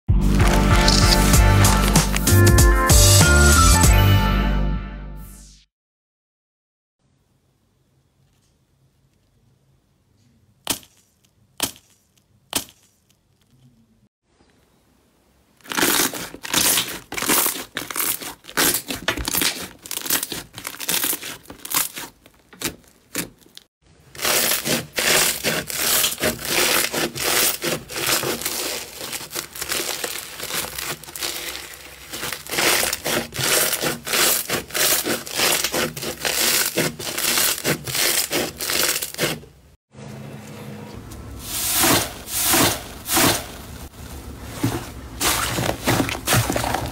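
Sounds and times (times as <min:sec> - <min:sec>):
slime crackling and popping: 0:00.3 - 0:02.4, 0:15.6 - 0:23.6, 0:24.2 - 0:39.4.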